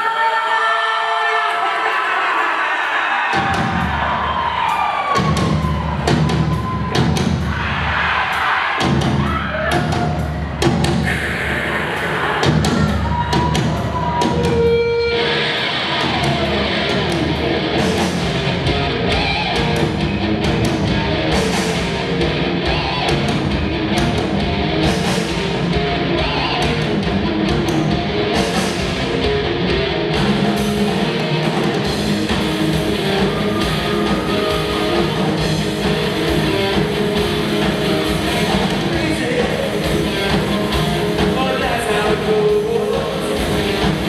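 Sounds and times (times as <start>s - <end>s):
drum kit: 3.3s - 44.0s
bass guitar: 3.4s - 8.2s, 8.8s - 44.0s
electric guitars: 8.8s - 44.0s.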